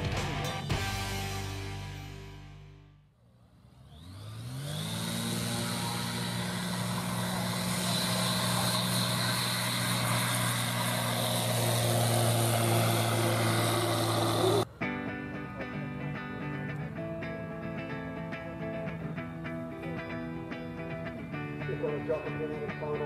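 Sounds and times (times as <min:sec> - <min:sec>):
light aircraft engine at full power: 0:03.3 - 0:14.8.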